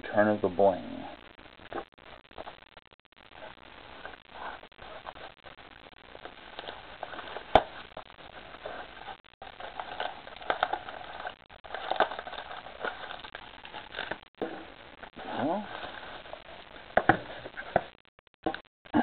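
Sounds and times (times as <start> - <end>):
packaging rustling and crinkling: 6.1 - 14.2.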